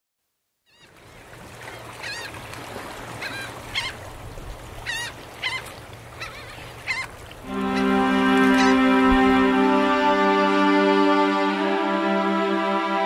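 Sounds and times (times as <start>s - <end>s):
gulls calling: 4.8s - 13.0s.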